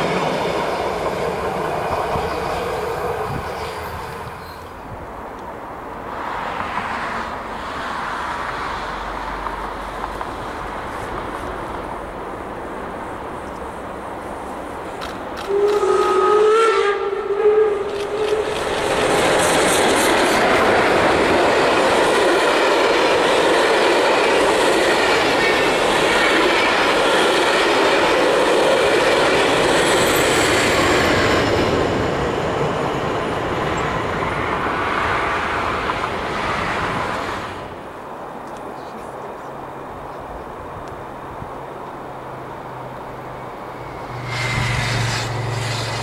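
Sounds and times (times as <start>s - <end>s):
train wheels on rails: 0.0s - 39.2s, 40.6s - 46.0s
steam whistle blast: 15.4s - 18.5s, 43.8s - 46.0s
high squeal: 43.3s - 46.0s.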